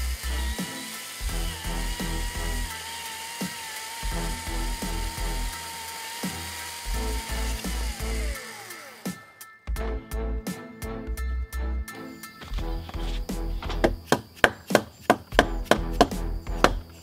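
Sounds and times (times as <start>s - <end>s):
electric chainsaw cutting wood: 0.0s - 9.5s.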